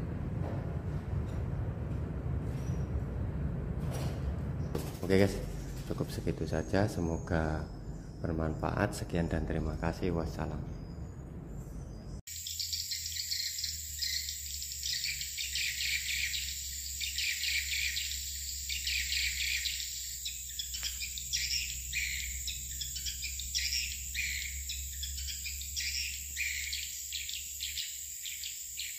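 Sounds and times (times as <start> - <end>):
low hum: 0.0 - 27.7
high insect-like whine: 12.3 - 28.9
swiftlets twittering: 12.3 - 28.9.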